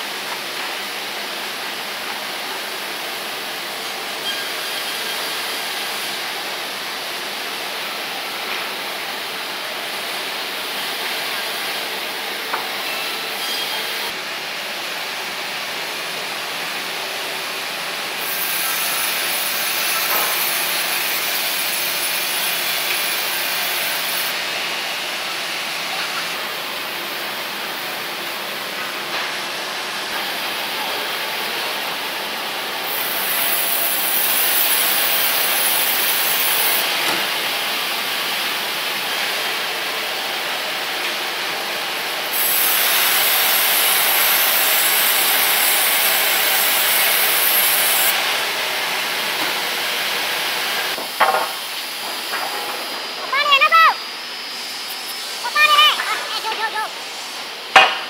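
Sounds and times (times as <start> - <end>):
band saw cutting wood: 18.2 - 24.4, 42.3 - 48.3.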